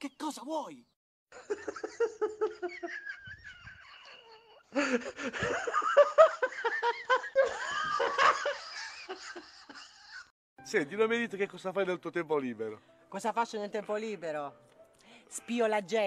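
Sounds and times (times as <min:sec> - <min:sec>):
people laughing: 0:01.4 - 0:10.3.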